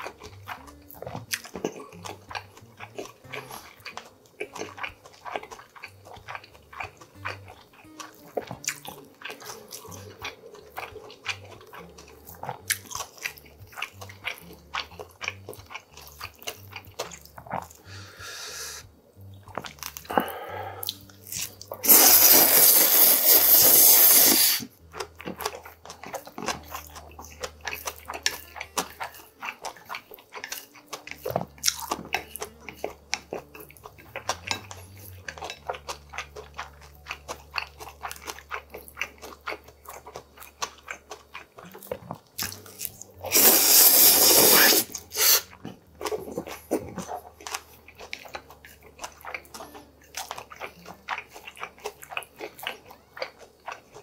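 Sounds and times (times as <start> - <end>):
wet chewing and smacking: 0.0 - 54.0
loud noodle slurps: 21.8 - 24.7, 43.3 - 45.5.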